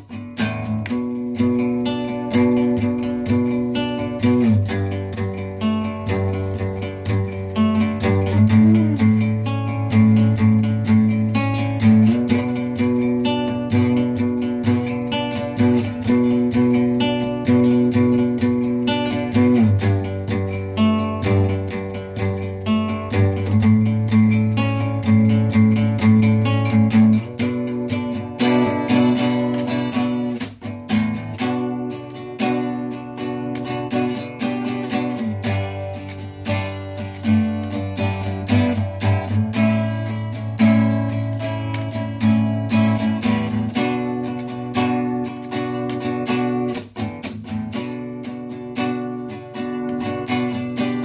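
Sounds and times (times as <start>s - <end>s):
acoustic guitar strumming: 0.0s - 51.0s.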